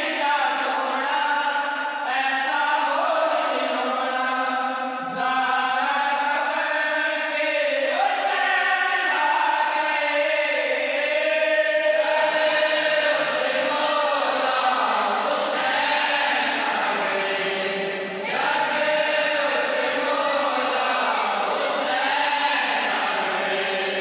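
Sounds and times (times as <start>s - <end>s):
men singing devotional chant: 0.0s - 24.0s.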